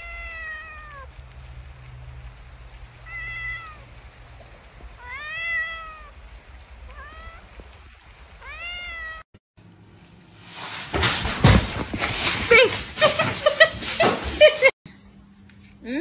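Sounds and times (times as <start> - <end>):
cat meowing: 0.0 - 1.1, 3.0 - 3.9, 5.0 - 6.2, 6.9 - 7.5, 8.4 - 9.3.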